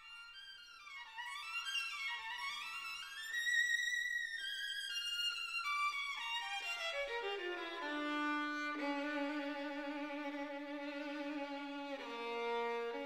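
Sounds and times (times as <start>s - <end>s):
violin playing long notes: 4.5s - 13.0s.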